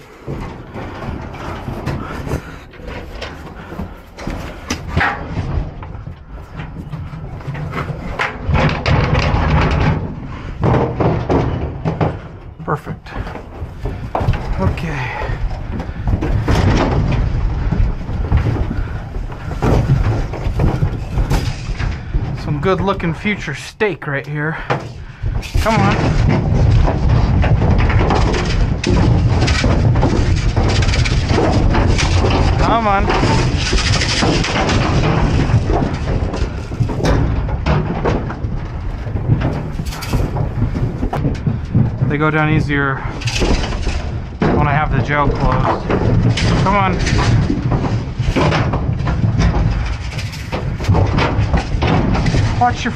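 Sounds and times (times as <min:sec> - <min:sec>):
bodies knocking metal walls: 0:00.0 - 0:52.9
hooves on trailer floor: 0:00.0 - 0:52.9
rattle paddle shaken: 0:24.6 - 0:52.9.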